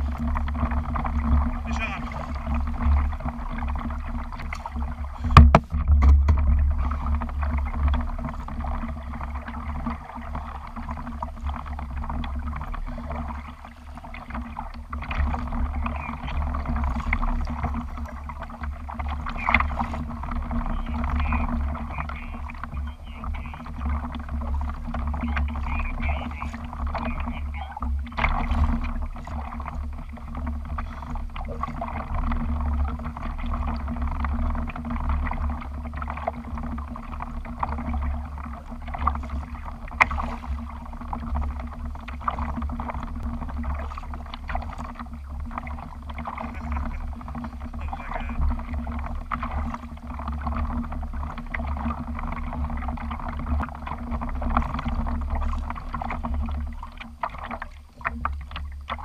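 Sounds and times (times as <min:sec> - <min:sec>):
steady low rumble: 0:00.0 - 0:59.0
water lapping against kayak hull: 0:00.0 - 0:59.0.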